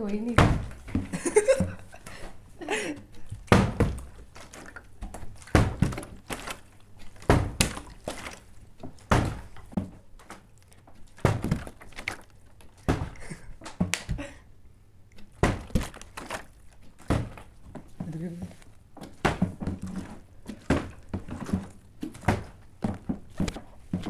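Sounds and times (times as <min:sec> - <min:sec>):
plastic bottle thunking on table: 0:03.3 - 0:06.6, 0:07.2 - 0:08.2, 0:09.0 - 0:10.0, 0:12.8 - 0:14.2, 0:19.0 - 0:24.0.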